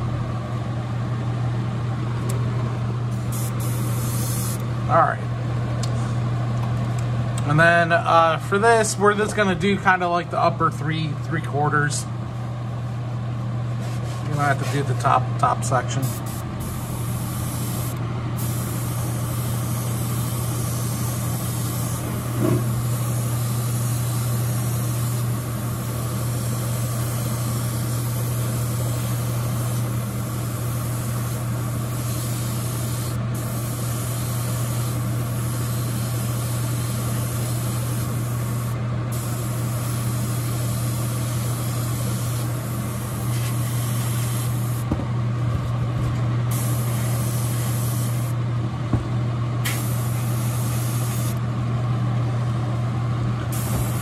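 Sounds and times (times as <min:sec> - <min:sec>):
exhaust fan hum: 0:00.0 - 0:54.0
airbrush hissing: 0:03.1 - 0:04.6, 0:16.0 - 0:44.8, 0:46.5 - 0:48.4, 0:49.6 - 0:51.4, 0:53.5 - 0:54.0.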